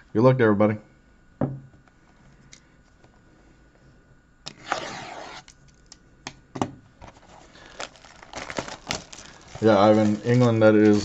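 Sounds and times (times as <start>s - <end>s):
shrink-wrap being torn: 7.2s - 11.0s.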